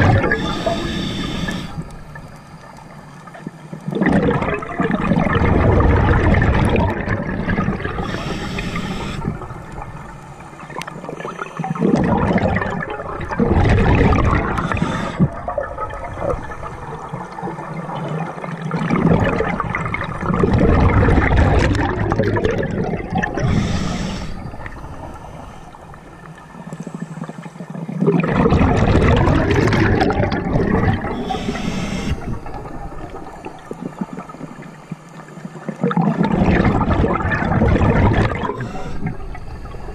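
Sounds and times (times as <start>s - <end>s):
exhaled bubbles gurgling underwater: 0.0s - 39.9s
scuba regulator hissing: 0.1s - 1.9s, 8.0s - 9.3s, 14.5s - 15.2s, 23.3s - 25.7s, 31.1s - 32.6s, 38.4s - 39.2s.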